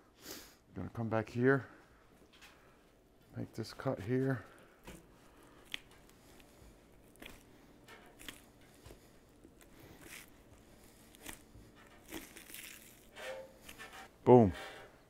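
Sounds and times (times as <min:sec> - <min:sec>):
knife slicing meat: 0:08.1 - 0:13.9.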